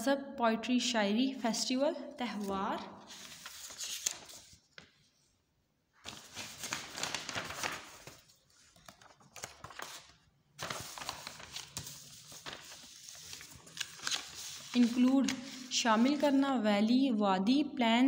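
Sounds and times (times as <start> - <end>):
book pages rustling: 3.1 - 5.3, 6.0 - 16.4.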